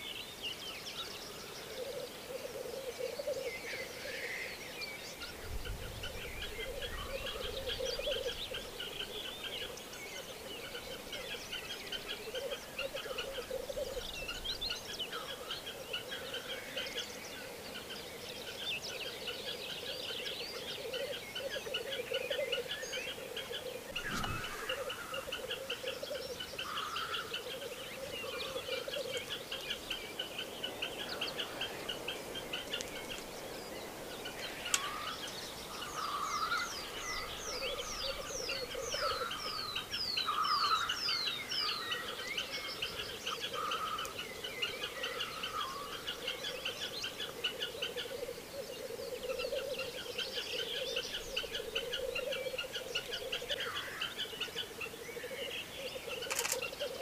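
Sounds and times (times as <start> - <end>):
grouse bubbling calls: 20.9 - 29.9
quick falling bird whistles: 23.9 - 25.1.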